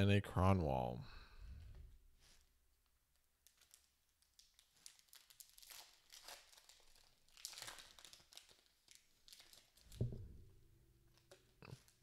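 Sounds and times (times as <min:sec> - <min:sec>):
foil wrapper crinkling and tearing: 0:03.4 - 0:10.0
low thump: 0:09.9 - 0:10.5.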